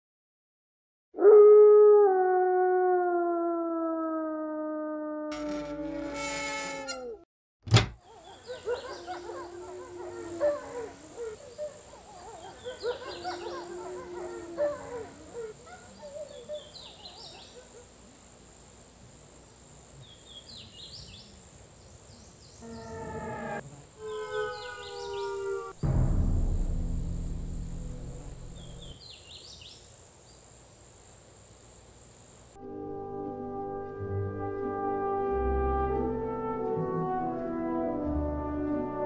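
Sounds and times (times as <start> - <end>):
birds chirping: 8.0 - 18.0, 20.1 - 25.7, 27.6 - 29.9
loud deep sound: 25.8 - 29.0.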